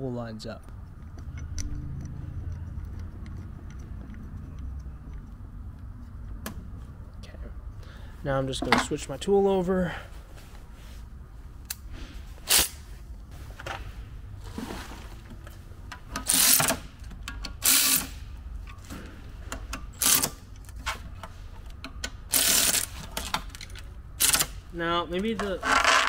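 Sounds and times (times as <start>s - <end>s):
steady low hum: 0.0s - 25.1s
ratchet wrench clicking: 16.2s - 18.2s, 19.6s - 20.6s, 21.8s - 23.0s, 24.2s - 24.6s.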